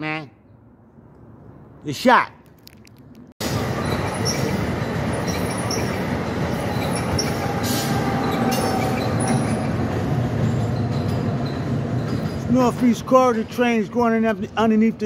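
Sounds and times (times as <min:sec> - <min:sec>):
train wheels rumbling on rail: 0:03.4 - 0:15.0
faint high-pitched wheel squeal: 0:03.7 - 0:09.7.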